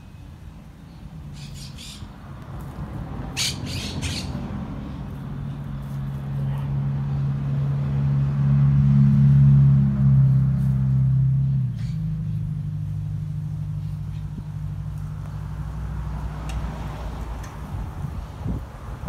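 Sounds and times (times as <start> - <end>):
bird squawking: 1.3 - 2.1, 3.4 - 4.4.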